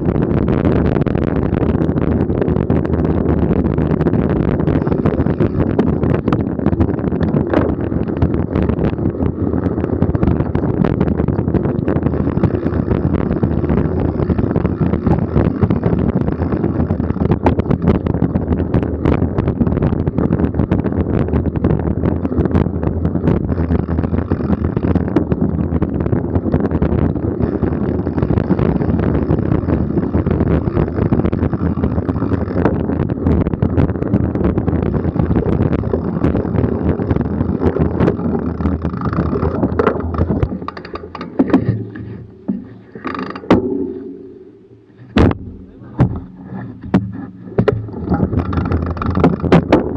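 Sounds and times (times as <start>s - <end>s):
mountain bike rumbling on trail: 0.0s - 49.9s
wind buffeting microphone: 0.0s - 49.9s
knocks from bumps: 39.0s - 49.9s.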